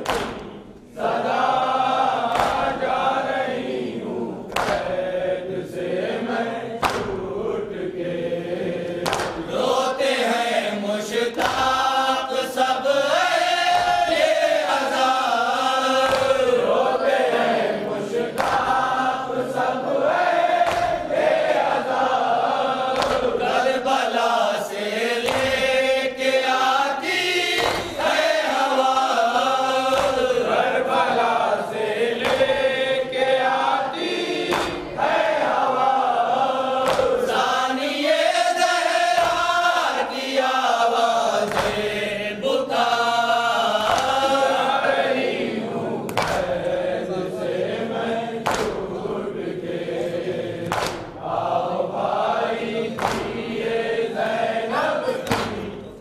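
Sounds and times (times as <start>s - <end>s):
men chanting a lament: 0.0s - 56.0s
person reciting into a microphone: 0.0s - 56.0s
hands thumping chests: 9.0s - 9.5s, 27.6s - 28.0s, 34.4s - 34.9s, 36.8s - 37.2s, 50.7s - 51.2s, 53.0s - 53.4s, 55.2s - 55.7s.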